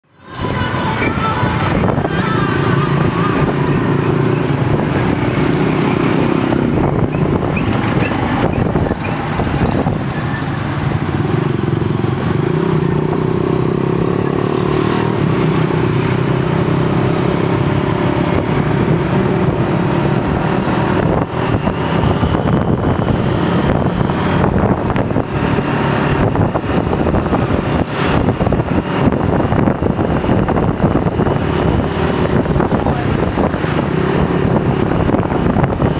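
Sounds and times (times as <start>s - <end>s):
road and wind noise: 0.0s - 35.9s
motorcycle engine running: 1.7s - 35.9s.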